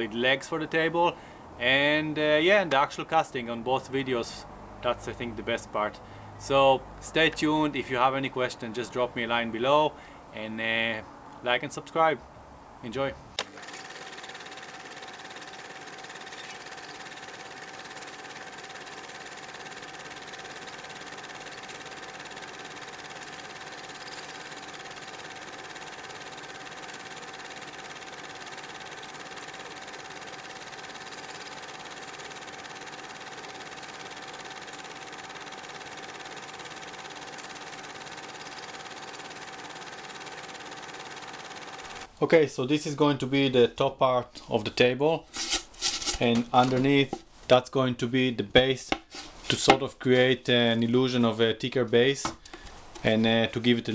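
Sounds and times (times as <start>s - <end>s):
small electric motor whining: 13.4s - 42.1s.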